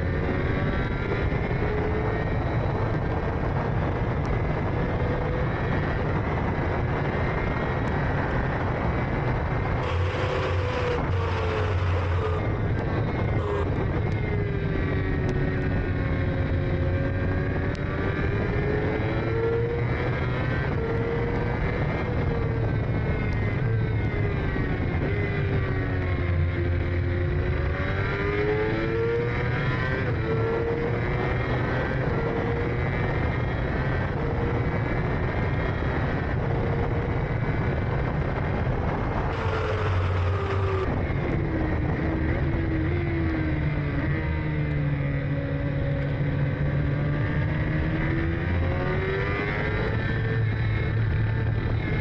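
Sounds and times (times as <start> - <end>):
racing engine revving: 9.7 - 22.0, 39.2 - 41.3.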